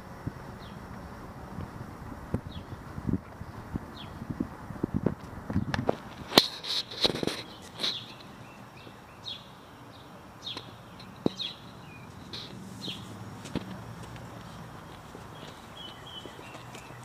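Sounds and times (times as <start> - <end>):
bird chirping: 0.6 - 1.1, 2.4 - 4.3, 6.6 - 17.0
footsteps: 12.0 - 17.0.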